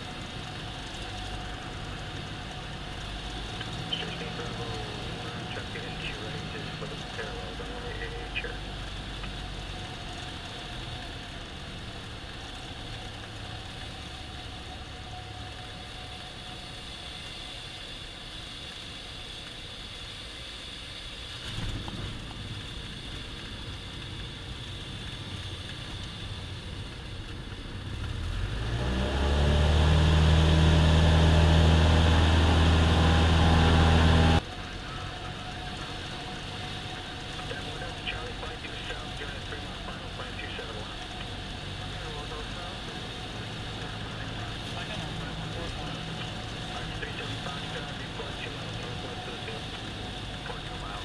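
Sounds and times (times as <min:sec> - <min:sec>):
propeller plane engine running: 0:00.0 - 0:51.0.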